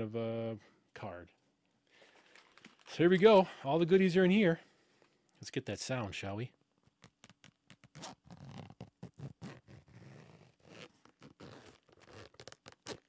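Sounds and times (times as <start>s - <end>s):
zipper being unzipped: 7.1s - 13.0s.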